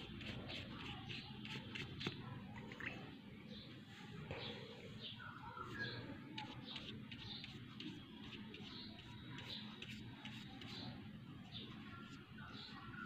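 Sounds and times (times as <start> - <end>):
paintbrush scratching on paper: 0.0 - 2.3, 5.6 - 13.0.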